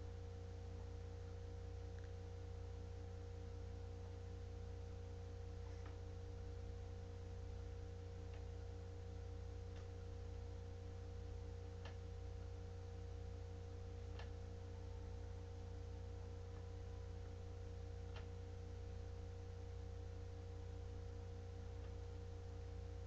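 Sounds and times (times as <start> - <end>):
electrical hum and hiss: 0.0 - 23.0
faint clicks: 9.7 - 10.0, 14.1 - 14.4, 18.1 - 18.4.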